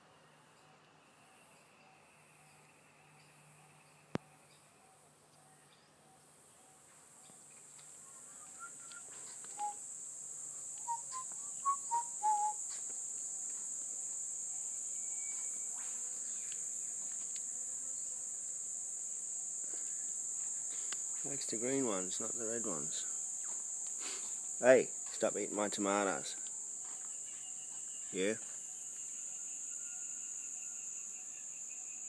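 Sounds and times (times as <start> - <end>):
high-pitched insect drone: 0.6 - 4.8, 7.2 - 32.0
short bird chirps: 8.3 - 9.8, 10.8 - 12.6.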